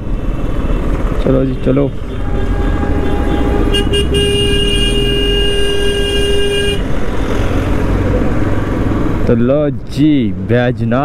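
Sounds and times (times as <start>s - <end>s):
vehicle horn tooting: 2.0s - 6.8s.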